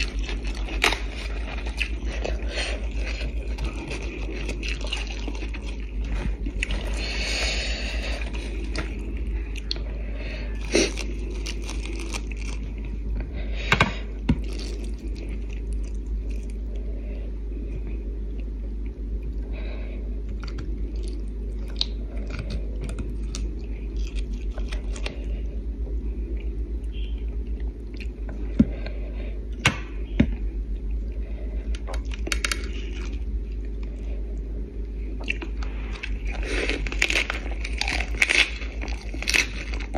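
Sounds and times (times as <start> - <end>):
lettuce leaves rustling and tearing: 0.0 - 9.1, 10.6 - 12.8, 35.6 - 39.9
close chewing: 0.0 - 9.9, 10.6 - 13.0, 20.4 - 25.4, 35.2 - 39.9
steady low hum: 0.0 - 39.9.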